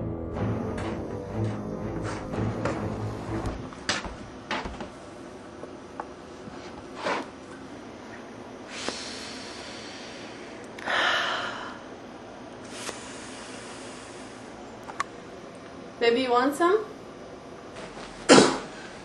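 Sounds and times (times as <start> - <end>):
footsteps: 0.8 - 5.0
loud sniff through nose: 12.6 - 14.4.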